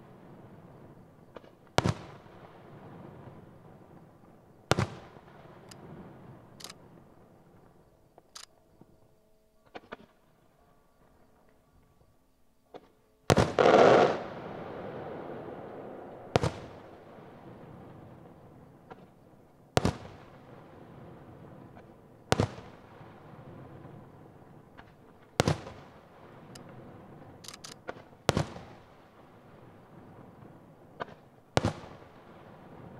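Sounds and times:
small firework pops: 0:01.3 - 0:02.3, 0:04.7 - 0:05.9, 0:09.7 - 0:10.2, 0:12.7 - 0:14.3, 0:16.3 - 0:16.9, 0:18.8 - 0:19.2, 0:19.8 - 0:20.4, 0:21.7 - 0:22.9, 0:24.7 - 0:26.8, 0:27.5 - 0:28.9, 0:30.4 - 0:32.9
firework shells bursting: 0:13.3 - 0:14.4.

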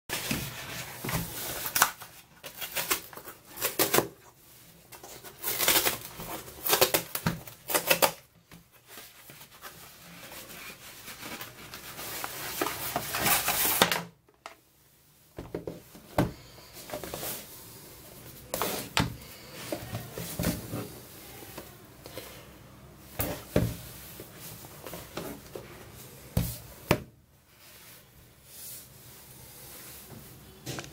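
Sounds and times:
cardboard rustling and scraping: 0:00.1 - 0:14.0, 0:15.4 - 0:21.2
cardboard tearing: 0:05.0 - 0:08.2.

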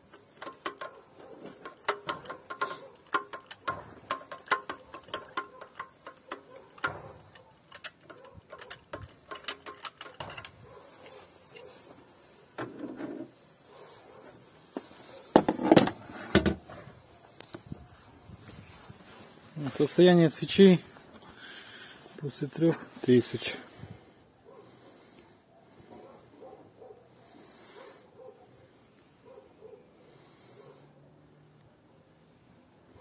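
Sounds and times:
ratchet wrench clicking: 0:00.0 - 0:10.6
tool knocking in plug well: 0:00.2 - 0:10.4.

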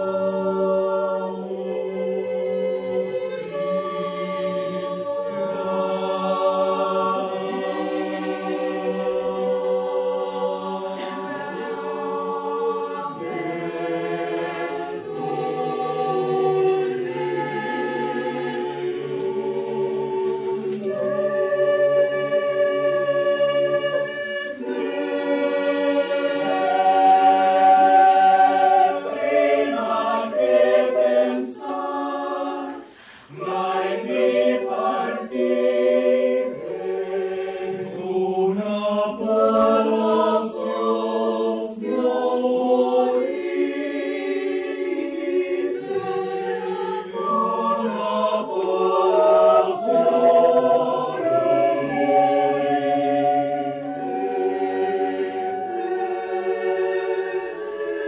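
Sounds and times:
choir singing a cappella: 0:00.0 - 0:58.0.

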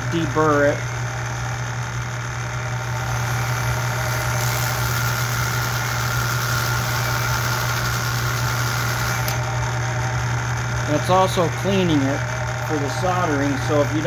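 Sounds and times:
sanding drum humming: 0:00.0 - 0:14.0
cordless drill spinning: 0:02.8 - 0:09.7.

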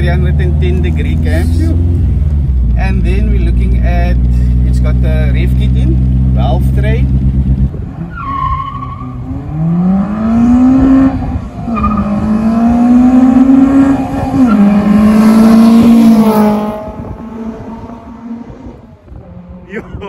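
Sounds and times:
car engine revving hard: 0:07.1 - 0:19.7.

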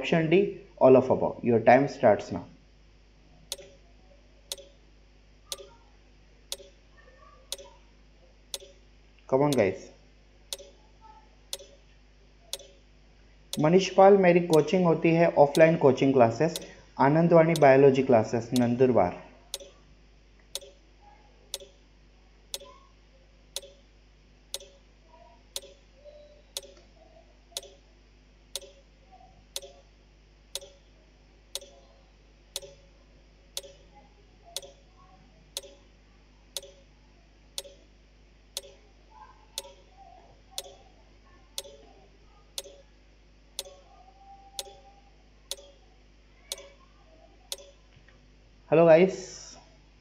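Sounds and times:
clock ticking: 0:03.5 - 0:03.8, 0:04.5 - 0:04.7, 0:05.5 - 0:05.7, 0:06.5 - 0:06.7, 0:07.5 - 0:07.7, 0:08.5 - 0:08.8, 0:09.5 - 0:09.7, 0:10.5 - 0:10.8, 0:11.5 - 0:11.8, 0:12.5 - 0:12.8, 0:13.5 - 0:13.9, 0:14.5 - 0:14.7, 0:15.5 - 0:15.8, 0:16.5 - 0:16.7, 0:17.5 - 0:17.7, 0:19.5 - 0:19.7, 0:20.6 - 0:20.8, 0:23.6 - 0:23.8, 0:24.6 - 0:24.8, 0:25.6 - 0:25.8, 0:26.6 - 0:26.8, 0:27.6 - 0:27.8, 0:28.6 - 0:28.8, 0:29.6 - 0:29.8, 0:30.6 - 0:30.8, 0:31.6 - 0:31.8, 0:32.6 - 0:32.8, 0:33.6 - 0:33.8, 0:34.6 - 0:34.8, 0:35.6 - 0:35.8, 0:36.6 - 0:36.8, 0:37.6 - 0:37.8, 0:38.6 - 0:38.8, 0:39.6 - 0:39.8, 0:41.6 - 0:41.8, 0:42.6 - 0:42.8, 0:43.6 - 0:43.8, 0:44.6 - 0:44.8, 0:45.5 - 0:45.8, 0:47.5 - 0:47.7.

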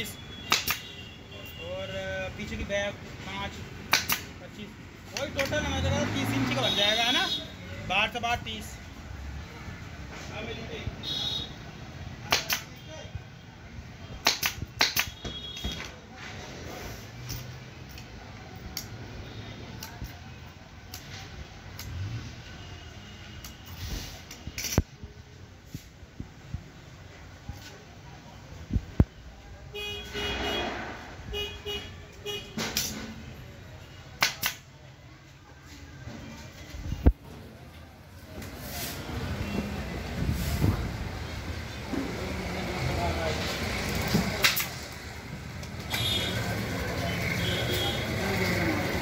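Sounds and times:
staple gun cracks: 0:00.5 - 0:00.8, 0:03.9 - 0:04.3, 0:12.3 - 0:12.7, 0:14.2 - 0:15.2, 0:34.2 - 0:34.6
single click: 0:00.5 - 0:00.9.

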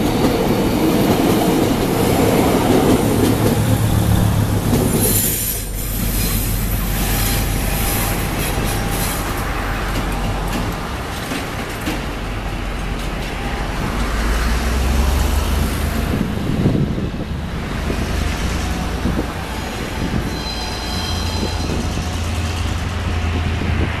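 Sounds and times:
diesel train engine droning: 0:00.0 - 0:24.0
wheel flange squeal: 0:19.6 - 0:22.8.

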